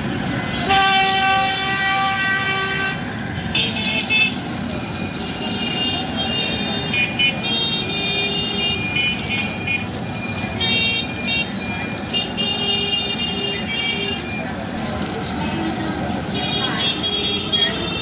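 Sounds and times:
street traffic: 0.0s - 18.0s
high-pitched vehicle horns: 0.5s - 4.4s, 5.2s - 9.8s, 10.6s - 14.2s, 16.3s - 18.0s.

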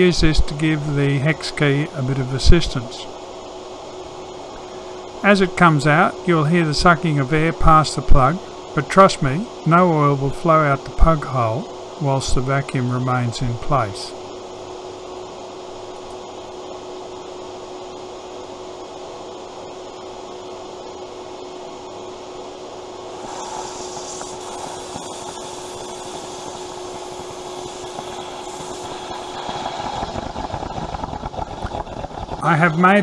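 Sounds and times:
shop vacuum cleaner whining: 23.0s - 31.6s
air hissing past drain plug: 23.1s - 30.7s.

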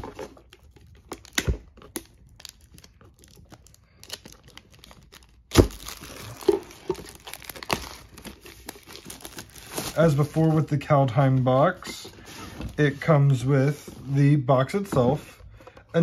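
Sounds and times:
plastic wrap ripping: 0.0s - 10.7s
plastic wrap crackling: 0.0s - 13.0s
plastic crinkling: 0.0s - 14.1s.

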